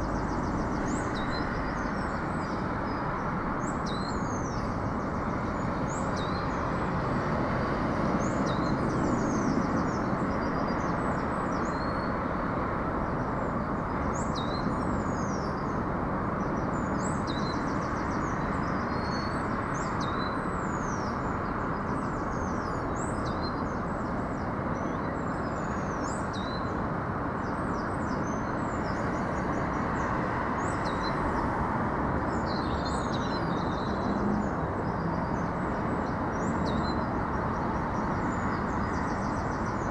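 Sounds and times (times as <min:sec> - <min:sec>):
small birds chirping: 0:32.2 - 0:39.9.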